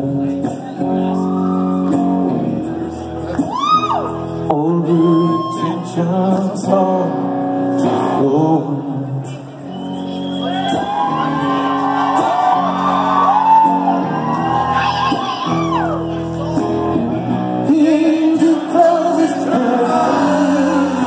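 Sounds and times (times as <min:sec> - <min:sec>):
man singing lead vocal: 0:00.0 - 0:09.7, 0:16.6 - 0:21.0
rock band playing: 0:00.0 - 0:21.0.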